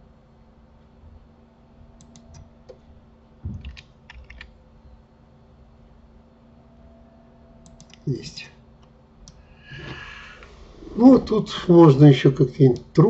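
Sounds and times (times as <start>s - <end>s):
faint steady hum: 0.0s - 13.0s
keyboard and mouse clicks: 2.0s - 2.8s, 3.5s - 4.5s, 7.6s - 8.0s
soft low thump: 3.4s - 3.8s.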